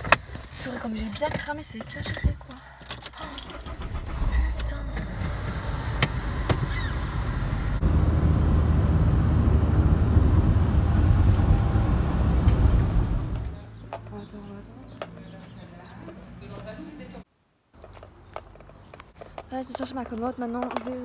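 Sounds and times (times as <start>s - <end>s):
car road and engine rumble: 0.0s - 15.4s.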